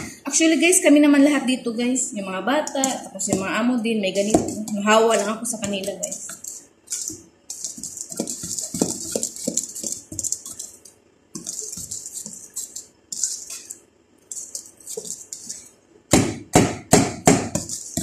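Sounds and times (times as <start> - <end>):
whisk scraping metal bowl: 2.6 - 15.8, 17.2 - 18.0.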